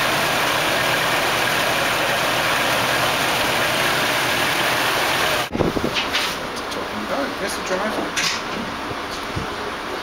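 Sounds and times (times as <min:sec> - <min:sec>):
boat engine running: 0:00.0 - 0:05.5.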